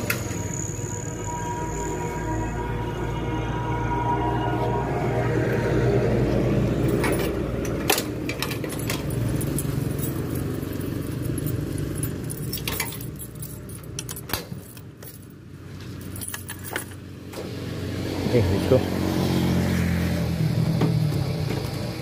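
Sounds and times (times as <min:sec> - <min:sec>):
keys jangling: 0:06.9 - 0:17.0.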